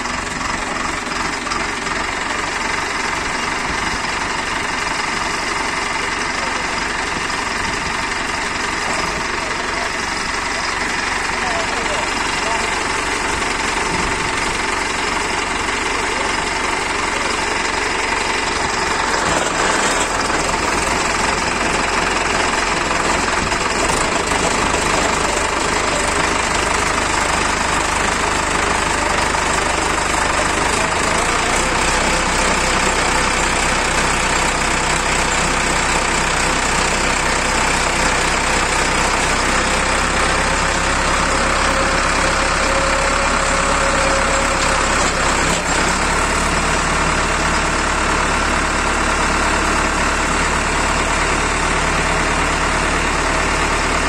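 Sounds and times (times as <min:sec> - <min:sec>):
tractor engine running: 0:00.0 - 0:54.0
auger boring into soil: 0:15.2 - 0:50.3.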